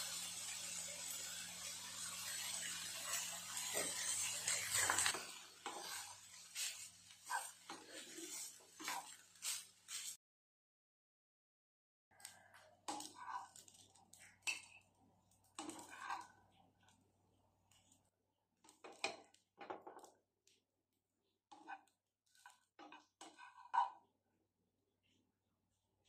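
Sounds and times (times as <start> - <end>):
spatula scraping frying pan: 2.1 - 10.2, 12.9 - 13.8, 15.6 - 16.5, 21.5 - 24.0.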